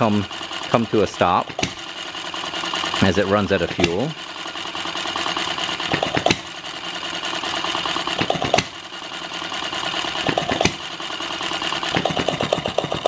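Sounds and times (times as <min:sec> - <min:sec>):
engine mechanical clatter: 0:00.0 - 0:13.0
engine firing pop: 0:01.5 - 0:01.9, 0:03.7 - 0:04.1, 0:05.9 - 0:06.6, 0:08.2 - 0:08.8, 0:10.2 - 0:10.9.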